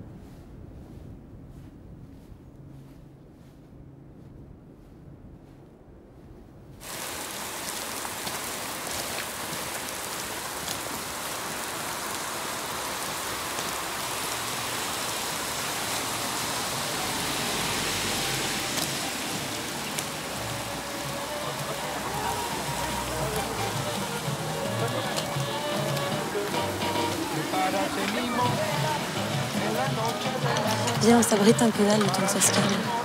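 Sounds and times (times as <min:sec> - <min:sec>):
rain on a wet street: 0:06.8 - 0:33.0.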